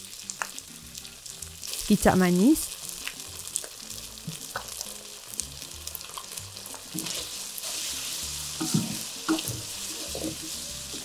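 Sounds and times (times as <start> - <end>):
paste sizzling in a wok: 0.0 - 11.0
spatula scraping and tapping pan: 8.6 - 11.0.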